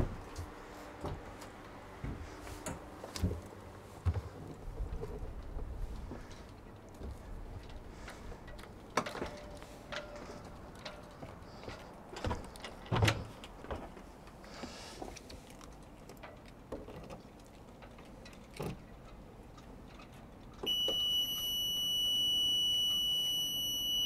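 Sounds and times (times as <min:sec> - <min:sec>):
alarm buzzer high tone: 0:20.7 - 0:24.0.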